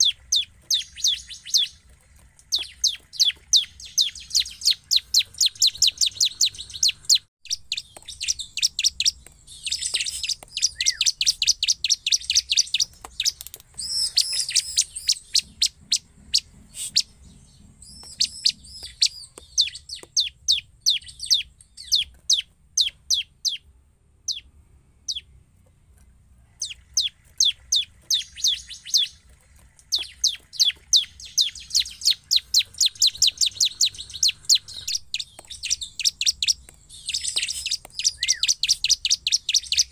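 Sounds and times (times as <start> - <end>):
bird calling in sharp high chips: 0.0 - 23.7, 26.6 - 39.9.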